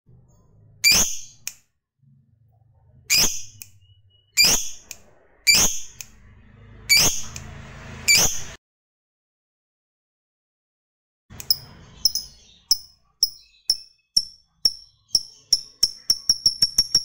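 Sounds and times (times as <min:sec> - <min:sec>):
lovebird high sharp calls: 0:00.8 - 0:01.5, 0:03.1 - 0:06.0, 0:11.5 - 0:17.0.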